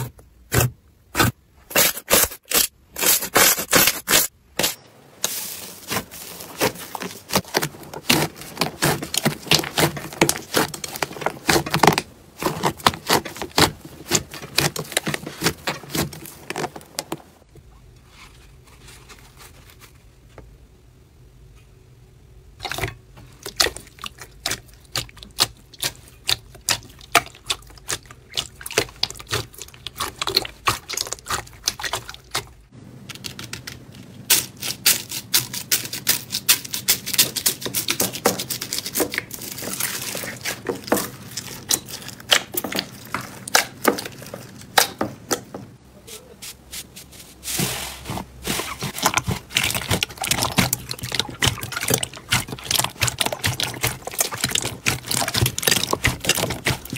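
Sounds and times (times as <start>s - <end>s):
slime squelching: 0.0s - 17.5s, 22.6s - 56.9s
foam bead slime crackling: 5.2s - 17.0s, 34.2s - 44.8s, 46.1s - 56.9s
hands kneading sticky slime: 5.2s - 17.4s, 22.6s - 32.7s, 33.8s - 56.9s.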